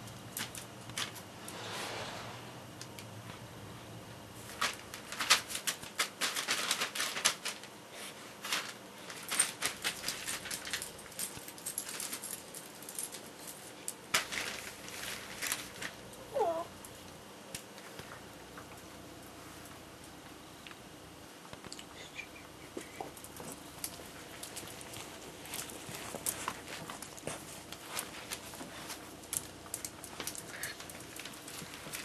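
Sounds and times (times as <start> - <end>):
newspaper crackling and rustling: 4.4 - 12.4, 14.1 - 16.6, 22.8 - 32.0
dog whining: 16.2 - 16.7.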